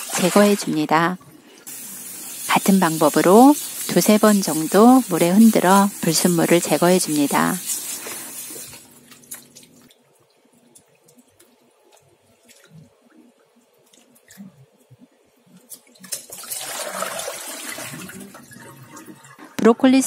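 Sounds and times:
water splashing and dripping: 0.0s - 0.9s, 2.8s - 18.4s
water rushing into sink: 0.0s - 1.0s, 16.1s - 19.4s.

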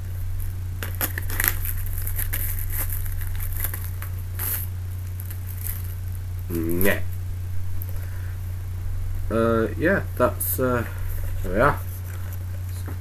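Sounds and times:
plastic wrap crinkling and tearing: 0.3s - 6.4s.

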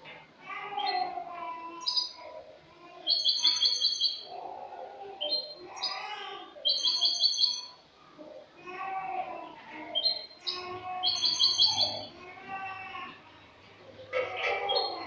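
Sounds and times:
goldfinch twittering song: 10.0s - 12.1s.

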